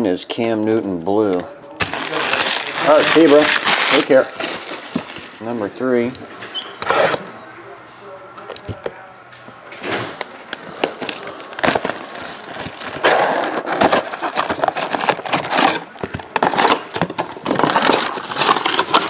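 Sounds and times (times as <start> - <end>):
shrink wrap crinkling: 1.7 - 6.4, 10.2 - 19.0.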